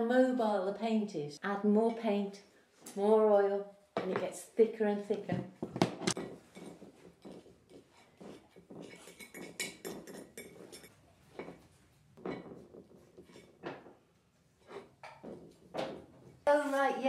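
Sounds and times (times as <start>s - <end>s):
painting tools clinking and scraping: 6.0s - 16.8s.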